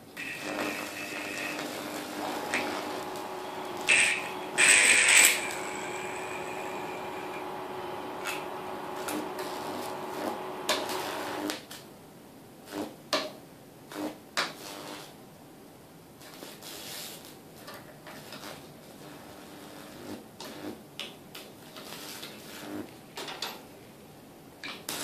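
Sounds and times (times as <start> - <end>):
transformer humming: 0.2 - 11.5
high-voltage arc crackling: 0.2 - 11.6, 13.9 - 15.1, 18.2 - 20.8, 21.8 - 22.9.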